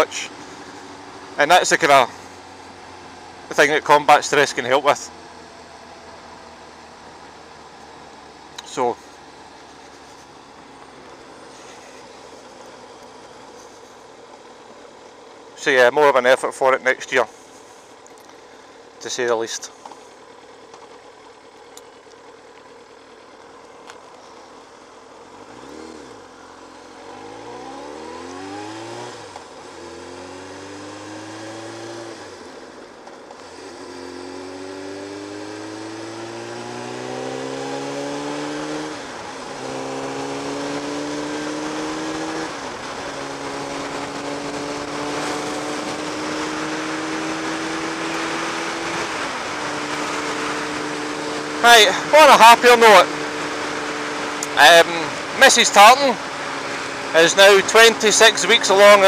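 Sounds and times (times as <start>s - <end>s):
motorcycle engine accelerating: 19.8s - 59.0s.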